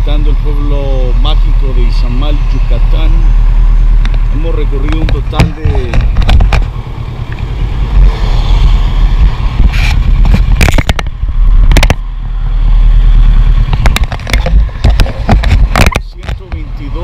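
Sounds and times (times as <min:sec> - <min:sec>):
road traffic: 0:00.0 - 0:17.0
wind rumble: 0:00.0 - 0:17.0
camera handling knocks and scrapes: 0:04.9 - 0:06.8, 0:09.7 - 0:12.0, 0:13.6 - 0:16.6.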